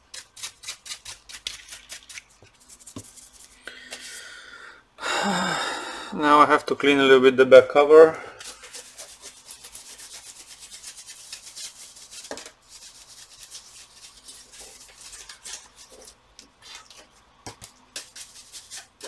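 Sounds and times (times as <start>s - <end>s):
scratchy rubbing on plastic: 0.1s - 3.6s, 8.4s - 17.2s, 17.9s - 19.0s.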